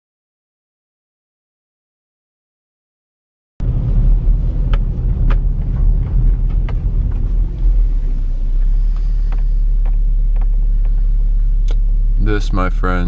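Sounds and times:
engine and road rumble: 3.6 - 13.0.

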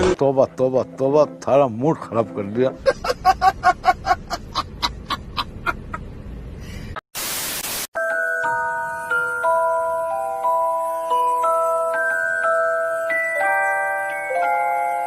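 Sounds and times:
man laughing: 2.8 - 6.1
static hiss: 7.2 - 7.9
glockenspiel melody: 8.0 - 15.0.

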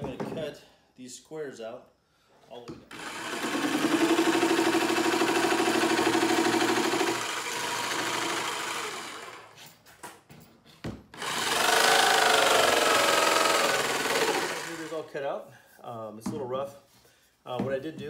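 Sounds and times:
jigsaw blade buzzing: 2.9 - 9.6, 11.2 - 15.0.

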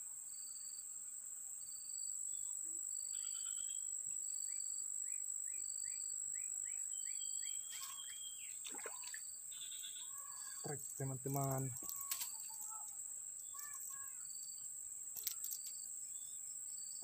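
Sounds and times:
high-pitched insect drone: 1.8 - 17.0
bird chirping: 3.1 - 14.3
faint rustles and clicks: 11.3 - 13.0, 15.1 - 15.8.

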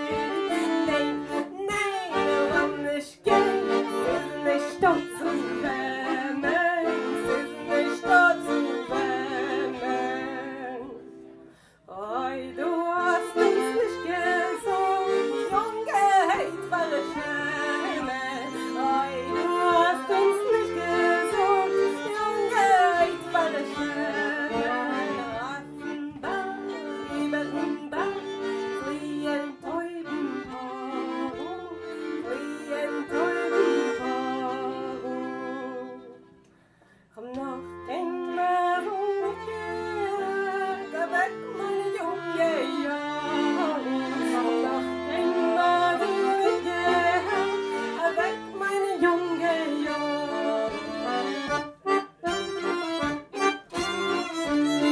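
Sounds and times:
accordion chords: 0.0 - 54.9
violin melody with slides: 50.1 - 54.9.

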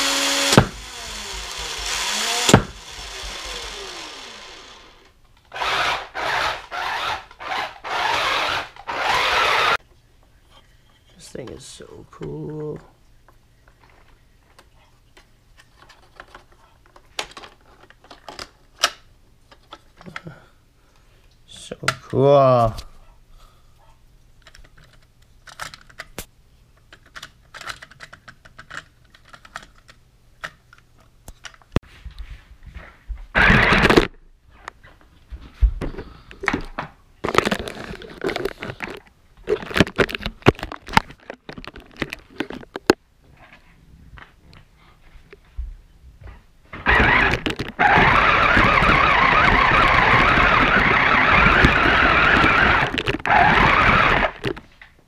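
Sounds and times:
plastic clicking and clatter: 13.7 - 20.3, 24.4 - 31.8, 36.4 - 43.0, 46.8 - 53.4, 54.3 - 55.0.

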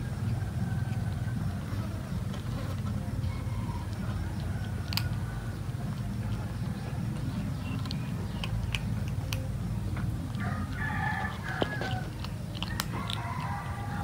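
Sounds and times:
kitten crunching dry kibble: 0.0 - 14.0
steady low rumble: 0.0 - 14.0
rooster crowing: 3.2 - 5.7, 10.4 - 14.0.

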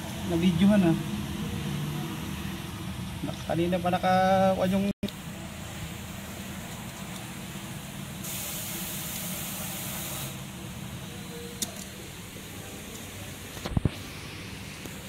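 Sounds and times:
spray can hissing: 8.2 - 10.4.

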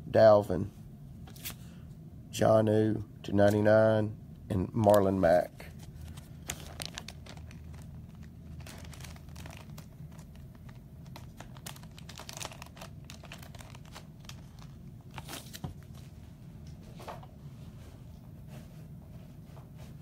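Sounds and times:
low steady hum: 0.0 - 20.0
paper and card rustling: 1.3 - 1.6, 4.8 - 16.1.

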